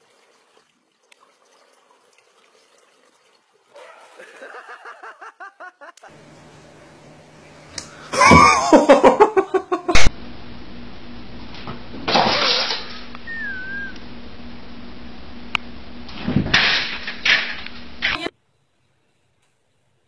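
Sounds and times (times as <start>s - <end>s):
people laughing: 4.2s - 6.2s, 8.1s - 10.0s.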